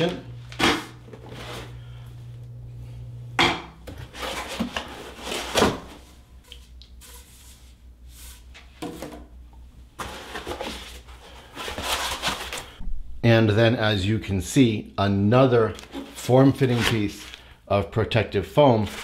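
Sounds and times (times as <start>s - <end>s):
low hum: 0.0s - 4.1s, 12.8s - 13.8s.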